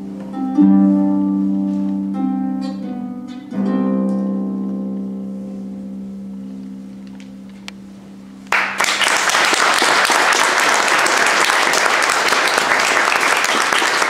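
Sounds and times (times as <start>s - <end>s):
audience applauding: 8.5s - 14.0s.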